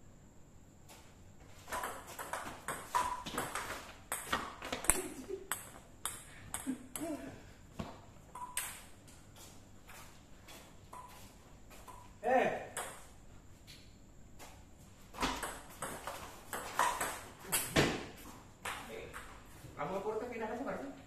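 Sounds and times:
ping pong ball pings and clicks: 0:01.7 - 0:07.1, 0:08.3 - 0:08.9, 0:12.7 - 0:13.1, 0:15.4 - 0:17.8.

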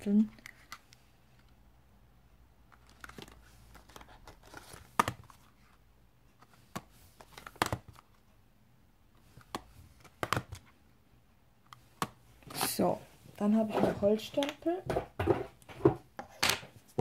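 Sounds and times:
plastic packs clicking and knocking: 0:06.7 - 0:08.0, 0:09.4 - 0:10.7.

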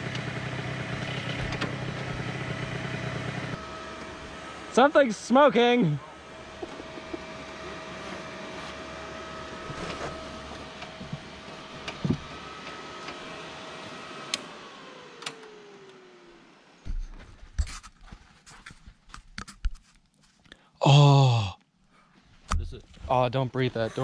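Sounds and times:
electric motor whining: 0:00.0 - 0:05.0, 0:05.6 - 0:16.5.

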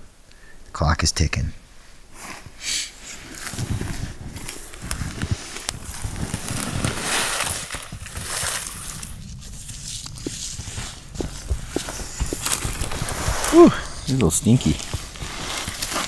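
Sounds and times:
clothing rustling: 0:01.8 - 0:16.0
boots crunching in snow: 0:03.3 - 0:16.0.

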